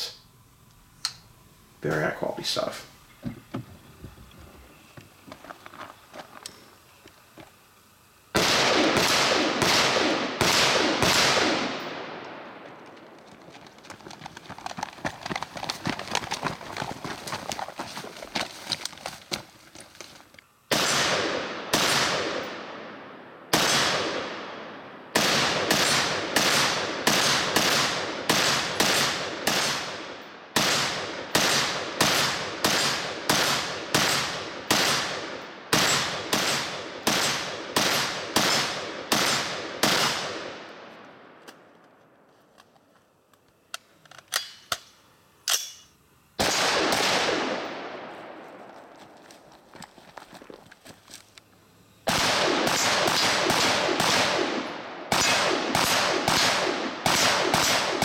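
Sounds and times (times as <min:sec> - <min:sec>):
rifle shots echoing: 0:08.3 - 0:12.9, 0:20.7 - 0:41.4, 0:46.4 - 0:48.7, 0:52.1 - 0:58.0.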